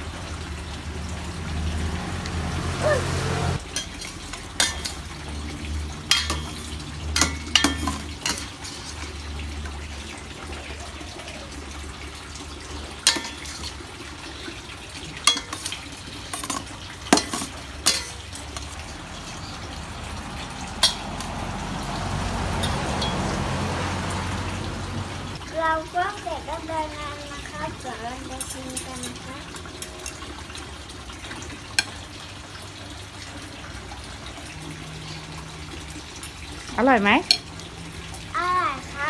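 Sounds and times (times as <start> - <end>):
tongs clinking against metal bowl: 3.7 - 5.1, 6.1 - 9.1, 13.0 - 13.8, 15.2 - 19.5, 20.8 - 21.3, 28.3 - 30.3.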